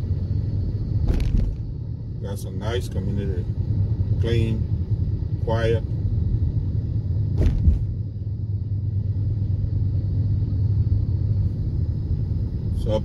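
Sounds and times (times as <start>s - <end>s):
engine and tyre road rumble: 0.0s - 13.0s
sharp knock: 7.4s - 7.9s.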